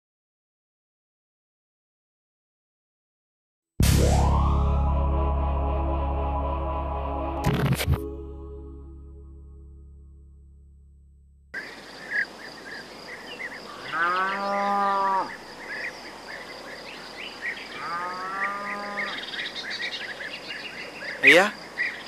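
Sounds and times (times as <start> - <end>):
bird chirps: 11.6 - 17.9, 18.7 - 22.0
high insect drone: 11.6 - 22.0
cow mooing: 13.8 - 15.4, 17.7 - 19.2.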